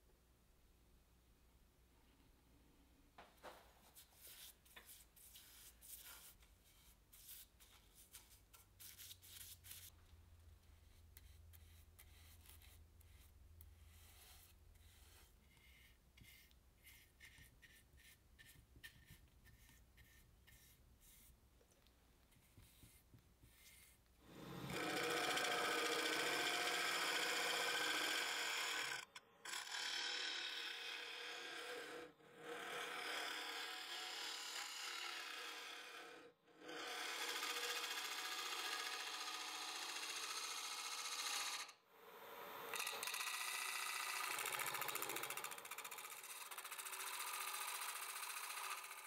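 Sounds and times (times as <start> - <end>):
lathe tool cutting wood: 24.3 - 36.1, 36.7 - 41.7, 42.7 - 45.8.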